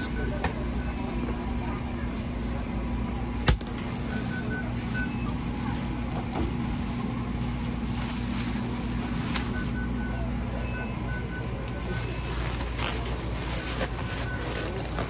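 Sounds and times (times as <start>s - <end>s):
low mechanical hum: 0.0s - 15.0s
faint high beeps: 4.1s - 5.5s, 9.4s - 15.0s.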